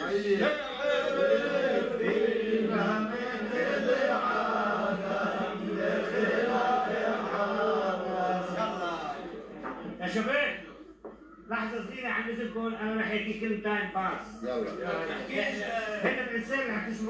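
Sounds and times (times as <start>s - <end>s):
men chanting in long held notes: 0.0s - 9.6s.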